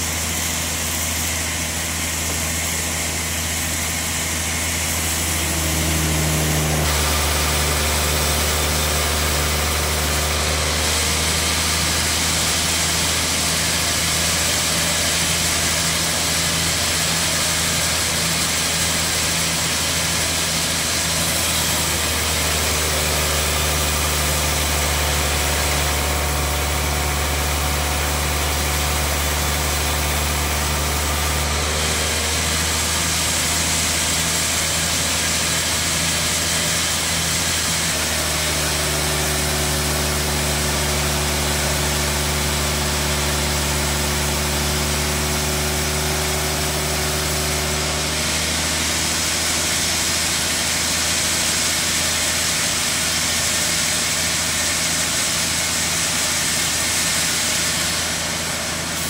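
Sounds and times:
bandsaw mill sawing log: 0.0 - 59.0.

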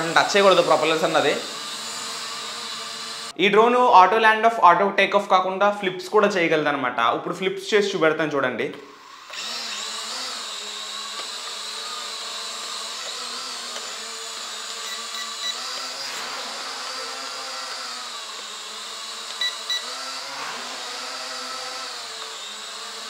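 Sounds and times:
drone propellers buzzing: 9.3 - 23.0.

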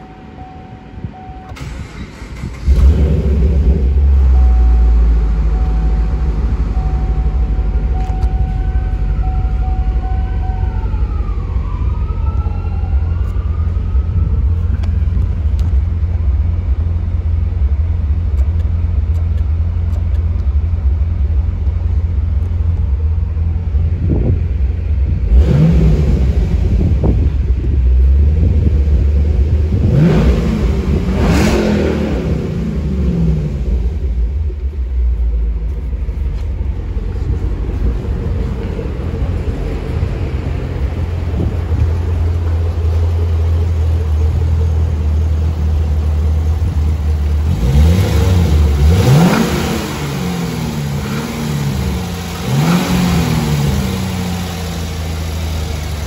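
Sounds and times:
car engine idling and revving: 0.0 - 56.0.

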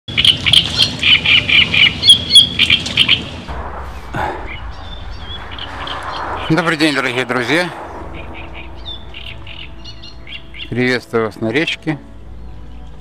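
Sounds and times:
small birds chirping: 0.1 - 6.5, 8.2 - 11.0
steady low background noise: 0.1 - 13.0.

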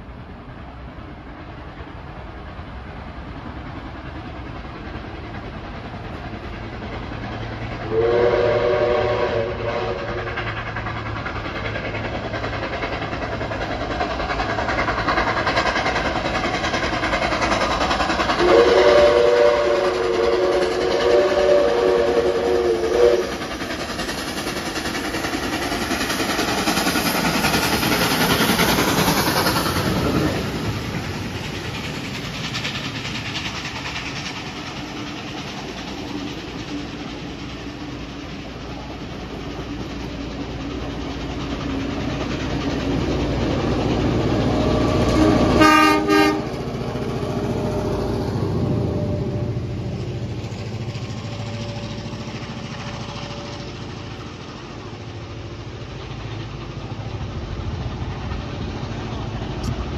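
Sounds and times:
steam locomotive running: 0.0 - 59.9
train wheels clattering: 0.0 - 59.9
train whistle blast: 7.9 - 10.3, 18.4 - 23.4, 45.0 - 46.6.

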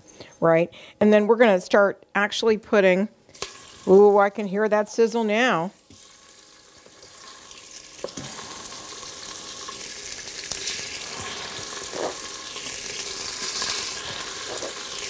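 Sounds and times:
meat sizzling in oil: 3.4 - 4.0, 5.8 - 15.0.

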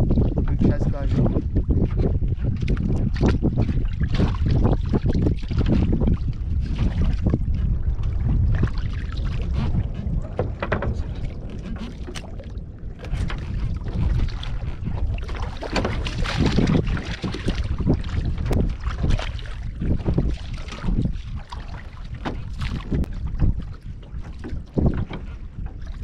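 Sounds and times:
water lapping against boat hull: 0.0 - 26.0
wind rumbling on microphone: 0.0 - 26.0
knocks and thuds on boat planks: 8.2 - 21.1, 21.7 - 26.0.

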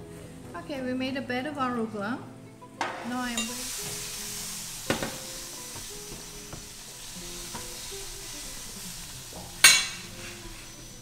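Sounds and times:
food sizzling in cookware: 2.7 - 11.0.

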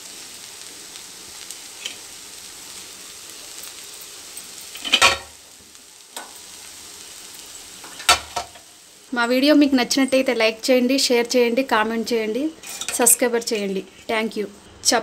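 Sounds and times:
food sizzling faintly in pan: 0.0 - 15.0
utensil clattering against pan: 4.7 - 5.3, 7.8 - 8.6.

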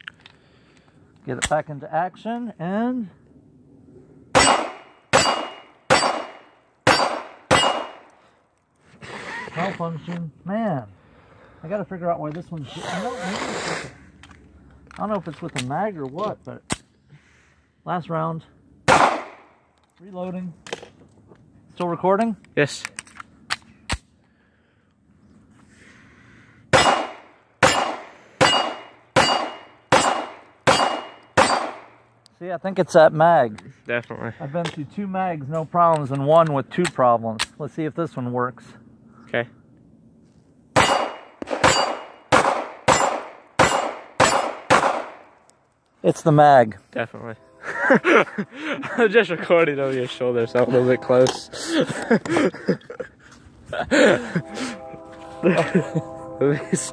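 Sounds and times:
pistol shots: 4.3 - 8.2, 18.9 - 19.5, 26.7 - 31.9, 40.8 - 45.3
steel target plate ringing: 4.4 - 8.1, 26.8 - 32.0, 40.8 - 42.3, 42.9 - 44.7.

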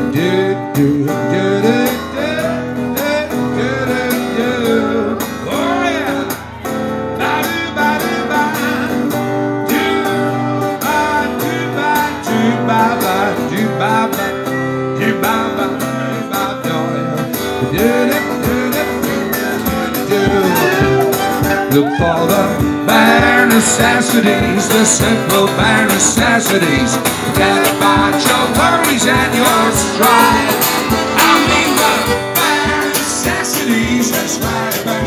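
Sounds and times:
acoustic guitar strumming: 0.0 - 35.0
man singing: 0.0 - 35.0
fiddle melody: 20.1 - 22.3, 28.6 - 33.9.

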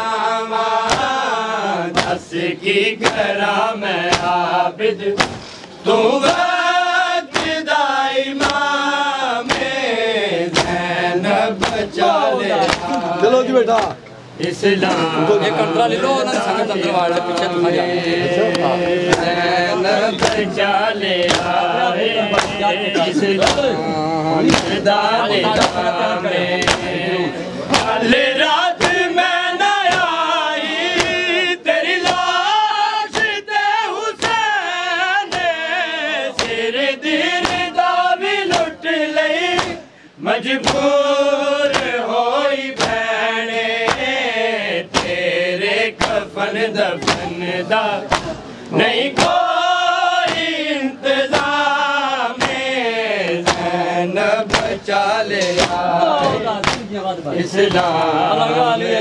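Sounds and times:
men chanting a lament: 0.0 - 59.0
chest-beating slaps: 0.8 - 1.2, 1.9 - 2.2, 3.0 - 3.3, 4.0 - 4.4, 5.1 - 6.5, 7.3 - 7.6, 8.4 - 8.7, 9.4 - 9.8, 10.5 - 10.9, 11.6 - 13.1, 13.7 - 15.1, 18.5 - 19.4, 20.1 - 21.7, 22.3 - 23.8, 24.4 - 24.9, 25.5 - 25.9, 26.6 - 27.0, 27.7 - 28.1, 28.8 - 29.0, 29.8 - 30.2, 30.9 - 31.3, 32.0 - 32.4, 33.1 - 33.4, 34.2 - 34.4, 35.3 - 35.6, 36.3 - 36.6, 37.4 - 37.8, 38.4 - 38.8, 39.5 - 39.9, 40.6 - 40.9, 41.7 - 42.0, 42.8 - 43.0, 43.8 - 44.2, 44.9 - 45.2, 45.9 - 46.4, 47.0 - 47.4, 48.0 - 49.5, 50.2 - 50.6, 51.3 - 51.7, 52.4 - 52.7, 53.3 - 57.0, 57.6 - 58.1.

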